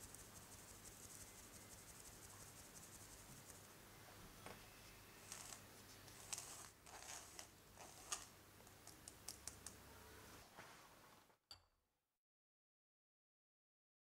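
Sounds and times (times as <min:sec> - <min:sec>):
spatula scraping through metal sieve: 0:05.2 - 0:08.4.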